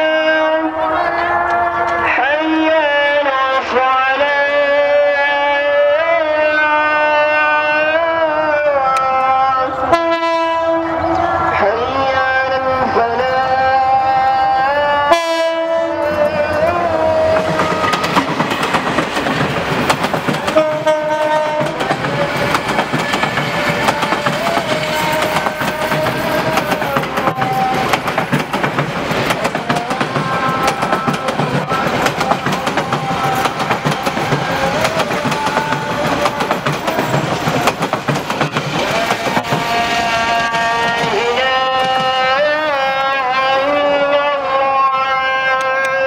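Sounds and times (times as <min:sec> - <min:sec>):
train wheels clattering over rail joints: 0:17.2 - 0:39.8.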